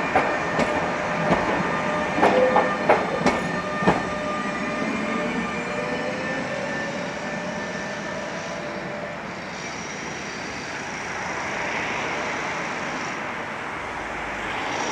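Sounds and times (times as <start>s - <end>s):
electric tram traction drive whining: 0.0s - 14.9s
street traffic rumble: 8.6s - 14.9s.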